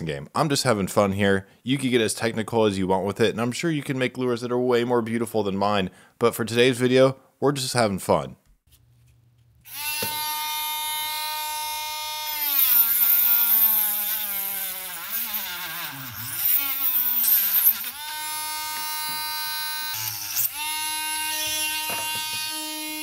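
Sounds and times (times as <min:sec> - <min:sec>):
rotary tool cutting plastic: 0:09.7 - 0:23.0.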